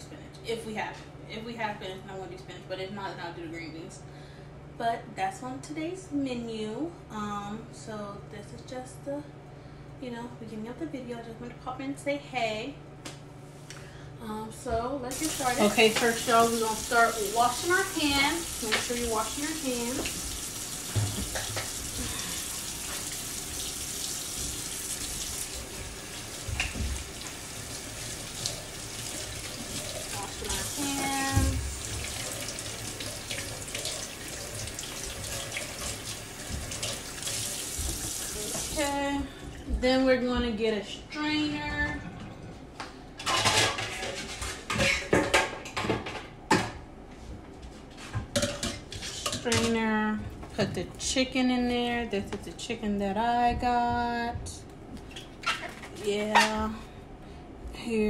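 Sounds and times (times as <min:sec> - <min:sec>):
faucet running into metal sink: 0:15.1 - 0:38.9
metal pots and pans clattering: 0:43.2 - 0:46.8, 0:48.3 - 0:49.8.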